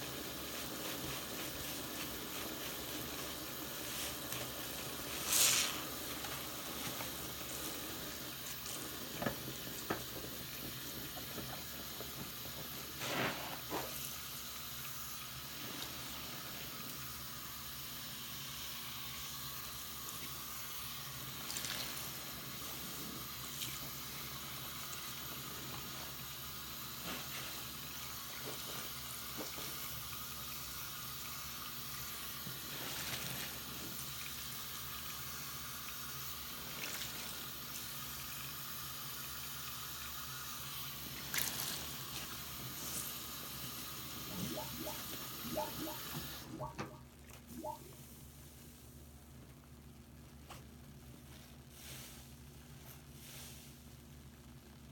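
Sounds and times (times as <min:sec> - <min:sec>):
sponge squelching: 0:00.0 - 0:07.8, 0:41.2 - 0:43.2, 0:44.1 - 0:48.0
faucet running into sink: 0:00.0 - 0:48.0.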